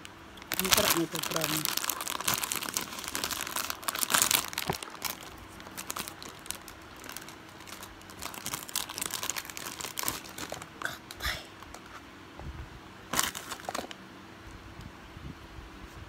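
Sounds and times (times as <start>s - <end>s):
packaging crinkling: 0.0s - 10.8s, 13.1s - 14.0s.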